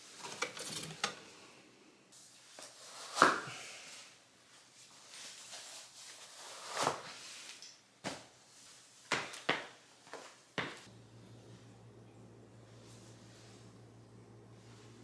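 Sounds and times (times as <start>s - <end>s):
shoes thudding on hardwood floor: 9.1s - 10.9s
steady low hum: 10.9s - 15.0s.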